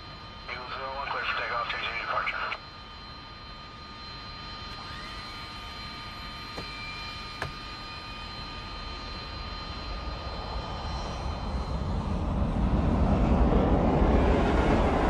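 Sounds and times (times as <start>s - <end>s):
jet aircraft passing: 0.4s - 2.6s, 6.7s - 15.0s.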